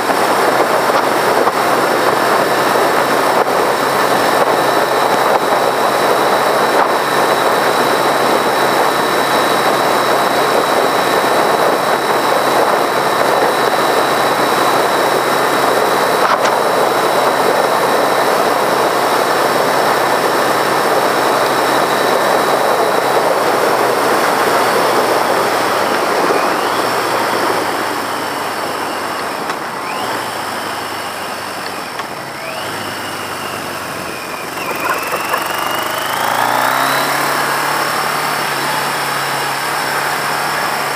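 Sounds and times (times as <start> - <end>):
wind rush: 0.0 - 29.5
motorcycle engine running: 0.0 - 40.9.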